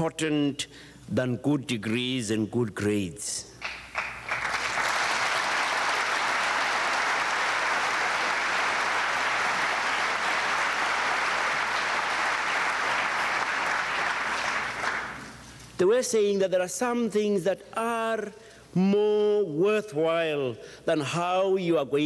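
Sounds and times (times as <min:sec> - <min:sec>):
audience applauding: 0:03.6 - 0:15.5.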